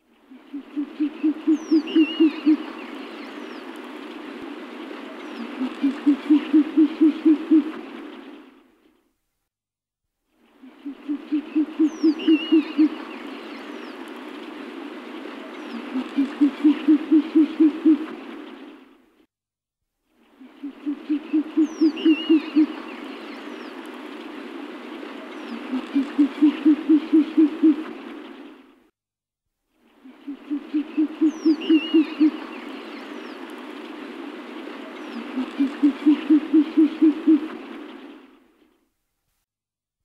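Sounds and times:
steady background hiss: 0.0s - 9.0s, 10.3s - 19.2s, 20.1s - 28.8s, 29.7s - 39.4s
owl hooting: 0.3s - 3.0s, 5.3s - 7.8s, 10.6s - 13.2s, 15.7s - 18.2s, 20.4s - 23.0s, 25.4s - 27.9s, 30.0s - 32.6s, 35.0s - 37.7s.

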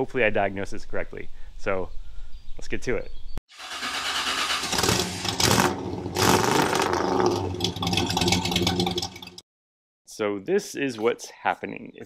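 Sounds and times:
car engine starting and revving: 3.5s - 9.4s.

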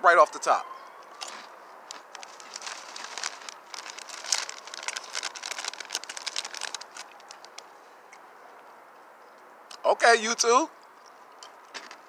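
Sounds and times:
crunchy snack being chewed: 1.1s - 7.6s
plastic snack bag crinkling: 1.2s - 7.6s.

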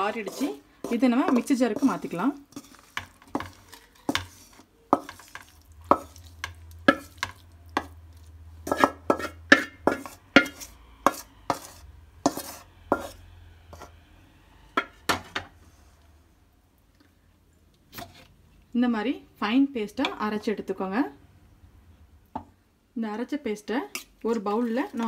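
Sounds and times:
spatula scraping metal pan: 0.0s - 8.0s, 8.6s - 14.0s.

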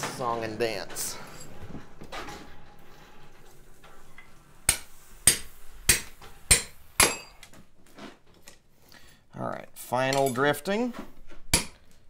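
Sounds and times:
hammer striking steel drift: 4.7s - 7.4s.

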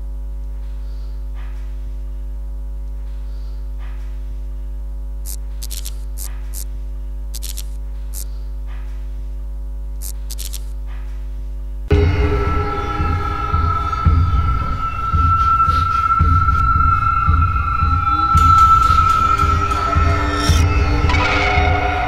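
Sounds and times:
electrical mains hum: 0.0s - 22.0s
static crackle: 5.2s - 6.7s, 7.3s - 8.3s, 10.0s - 10.8s.

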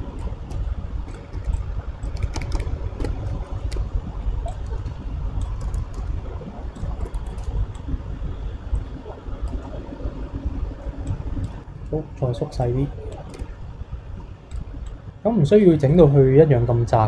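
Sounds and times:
keyboard and mouse clicking: 0.0s - 7.9s, 8.7s - 9.8s, 13.1s - 13.5s
low background rumble: 0.0s - 17.0s.

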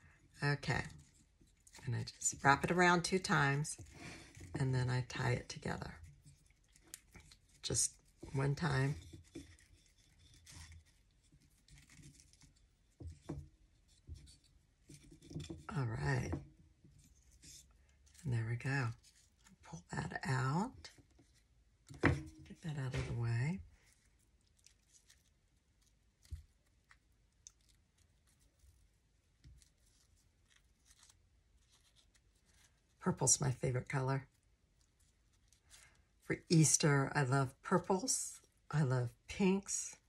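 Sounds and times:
ribbon rustling: 5.3s - 15.7s, 16.3s - 19.8s, 20.5s - 33.0s, 34.3s - 36.3s
ribbon handling clicks and rustles: 5.4s - 15.7s.

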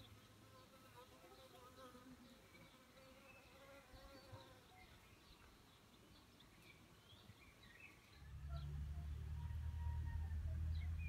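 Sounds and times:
low steady hum: 8.0s - 11.0s.

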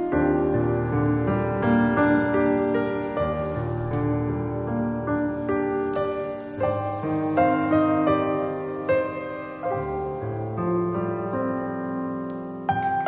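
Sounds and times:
gentle piano melody: 0.0s - 13.0s.

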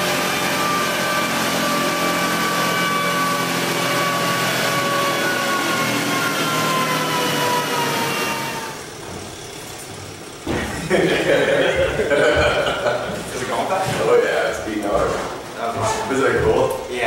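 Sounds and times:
motorcycle engine winding down: 0.0s - 13.4s.

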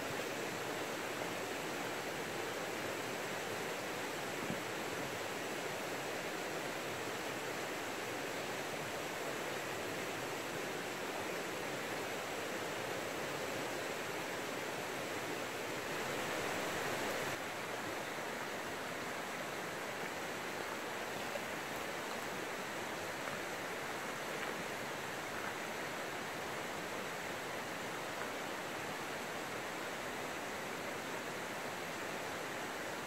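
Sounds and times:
river water rushing: 0.0s - 33.0s.

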